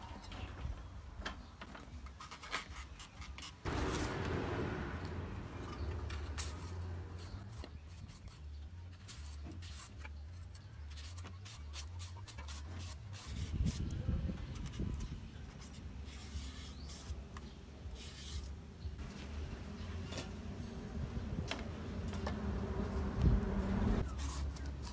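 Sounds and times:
hand peeler scraping skin: 0:02.1 - 0:04.0, 0:24.0 - 0:24.9
low bump: 0:03.7 - 0:07.2.

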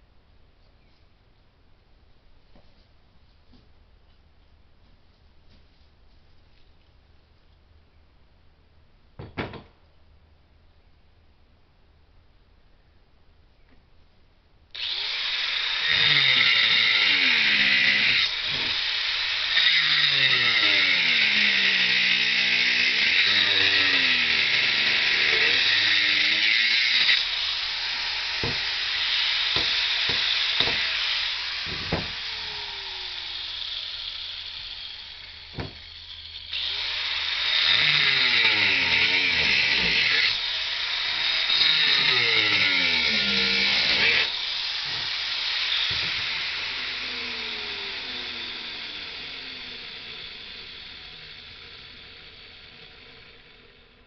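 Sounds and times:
power tool cutting masonry: 0:14.8 - 0:54.0.

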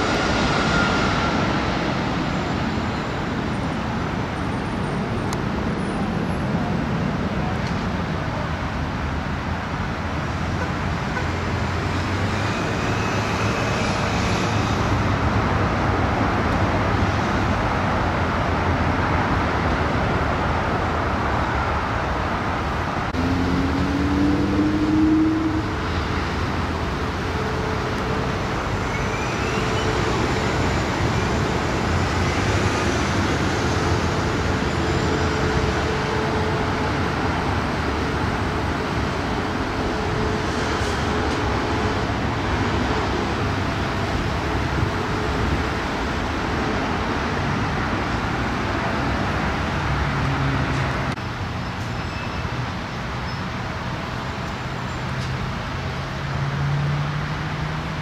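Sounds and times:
rising engine whine: 0:00.0 - 0:03.4, 0:23.0 - 0:47.3
jet engines roaring: 0:00.0 - 0:09.0, 0:09.7 - 0:51.2.

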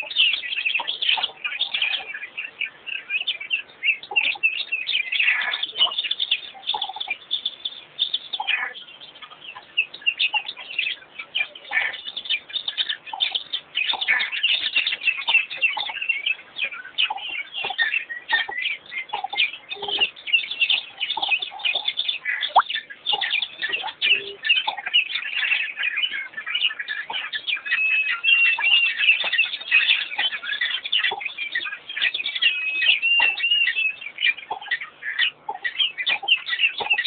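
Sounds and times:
low bird notes: 0:00.0 - 0:37.0
small birds chirping: 0:00.0 - 0:37.0.

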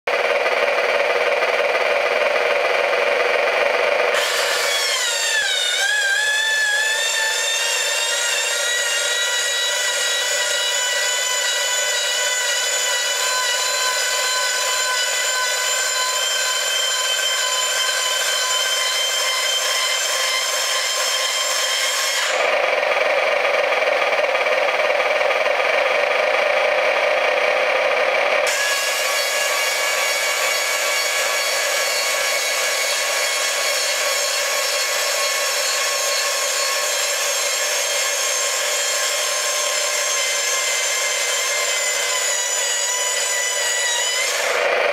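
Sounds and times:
electric motor whining: 0:00.1 - 0:44.9.

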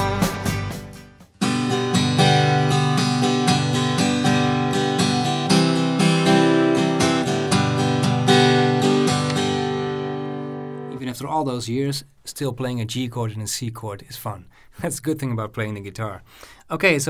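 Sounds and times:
acoustic guitar strumming: 0:00.0 - 0:11.2.

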